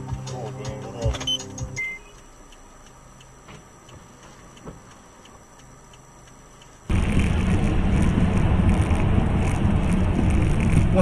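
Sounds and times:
background music: 0.0 - 1.8.

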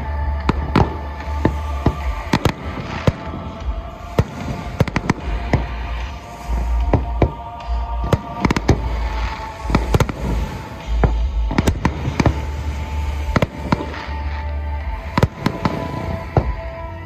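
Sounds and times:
fireworks bursting: 0.0 - 17.0.

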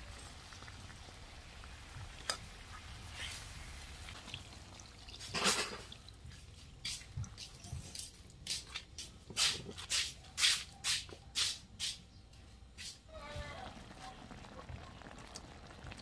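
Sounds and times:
liquid pouring into a wok: 0.0 - 6.8, 13.6 - 16.0
drips and pops in broth: 0.0 - 9.6, 13.6 - 16.0.

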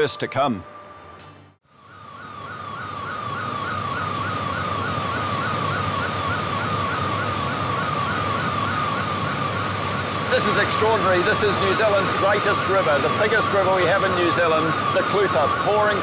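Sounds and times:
high falling alarm tone: 0.0 - 16.0
water roaring through spillway: 4.1 - 16.0.

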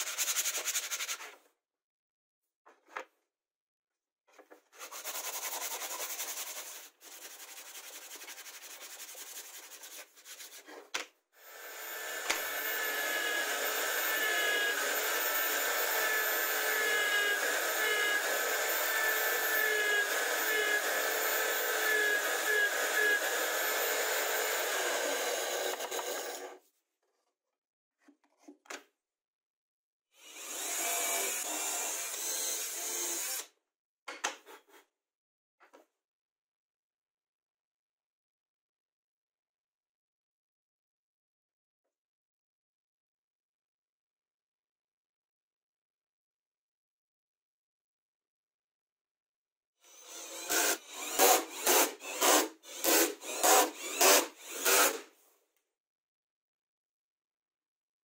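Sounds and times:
router cutting plywood: 11.5 - 26.6, 30.2 - 33.5, 49.9 - 55.0.

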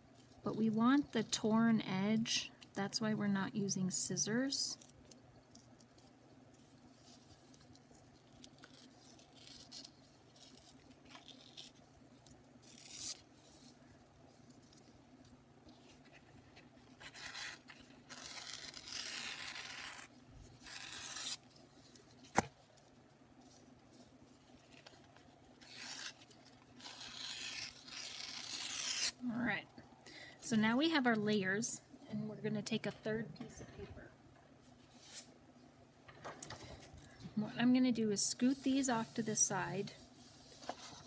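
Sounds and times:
paper tearing by hand: 12.6 - 13.6, 17.0 - 21.5, 25.6 - 29.2.

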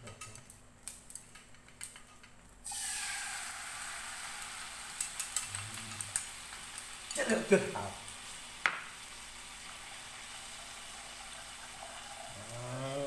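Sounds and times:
sauce sizzling in frying pan: 2.6 - 13.0.

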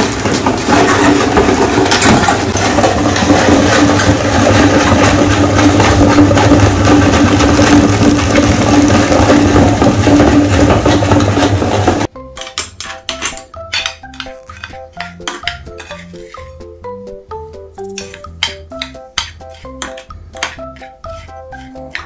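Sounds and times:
meat grinder motor hum: 0.0 - 12.1
hard candy crackling and grinding: 0.0 - 16.3.

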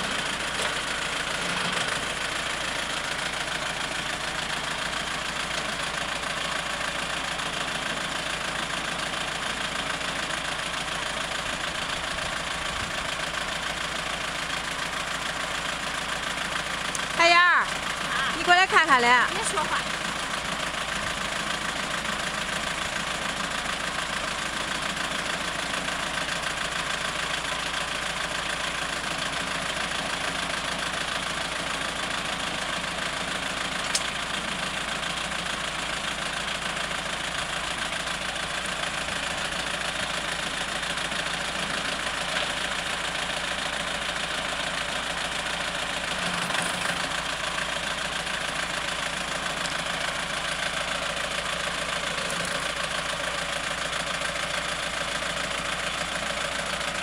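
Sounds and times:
tractor engine running: 0.0 - 57.0
sharp click: 33.8 - 34.1
backhoe digging soil: 45.8 - 47.6, 51.4 - 53.8.

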